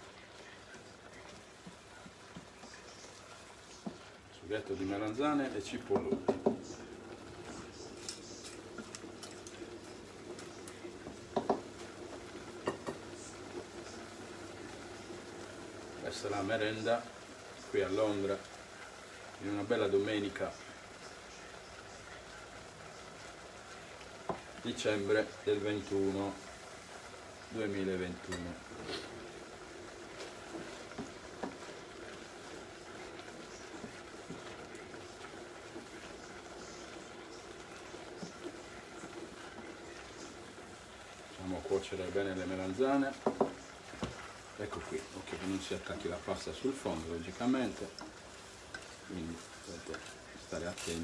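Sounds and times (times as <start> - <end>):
pans bubbling on the hob: 0.0 - 51.0
light clicks and knocks on pan: 5.9 - 6.7, 11.1 - 11.9, 12.6 - 13.0, 43.1 - 44.3.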